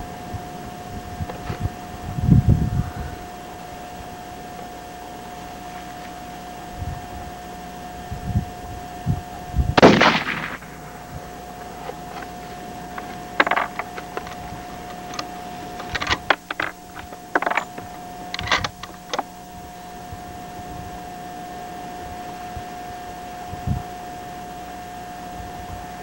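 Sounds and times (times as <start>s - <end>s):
rifle shot with echo: 9.8s - 12.2s
rifle bolt clicking: 11.8s - 19.2s.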